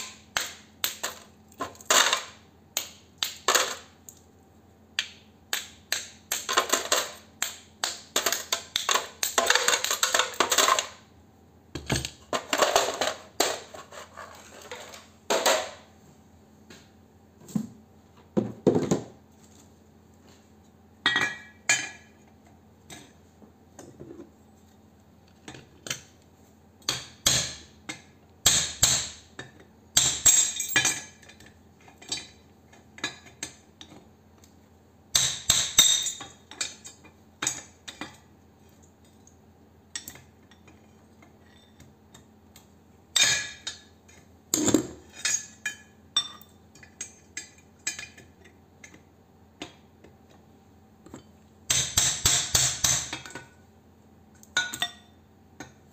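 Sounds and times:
metal clinks and clatter on workbench: 30.2 - 31.4.

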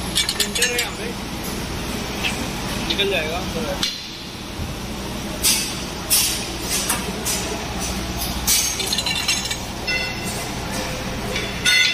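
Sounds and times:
metal bars clinking: 0.1 - 1.0, 8.5 - 10.4.

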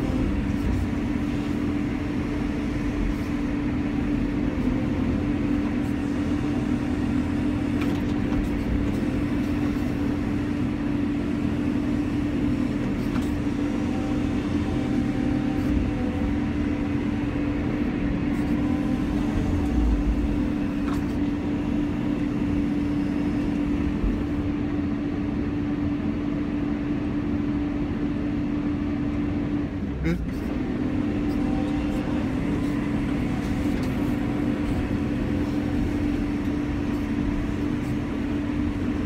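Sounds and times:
excavator engine drone: 0.0 - 39.0.

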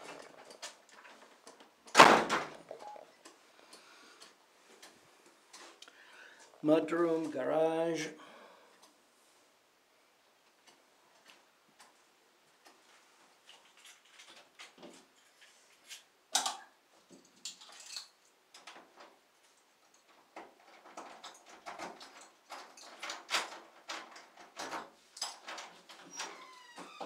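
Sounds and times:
door lock clicks and rattles: 20.4 - 26.9.

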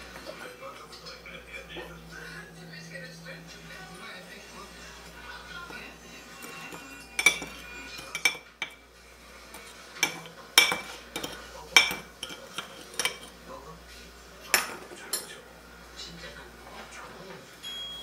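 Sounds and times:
spoon clinking against dish: 5.6 - 8.8, 9.5 - 13.4
metal spoon scraping ceramic dish: 5.7 - 8.8, 9.5 - 13.4.

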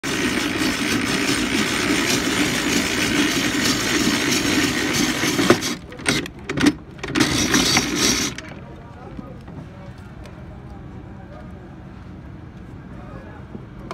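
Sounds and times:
ice-shaving machine grinding: 0.0 - 8.6.

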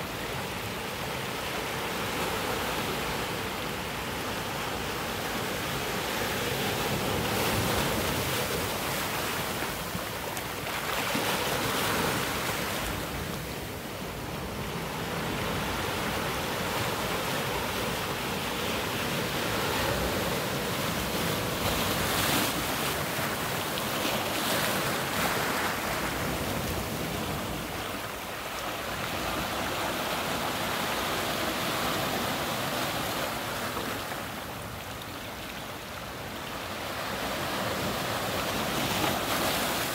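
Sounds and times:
ocean surf breaking on rocks: 0.2 - 35.5, 36.2 - 39.9.

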